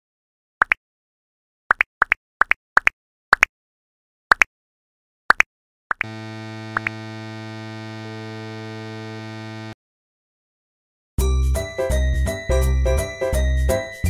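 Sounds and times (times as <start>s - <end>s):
electronic buzzing tone: 6.0s - 9.8s
tiny rising blips: 6.0s - 9.8s.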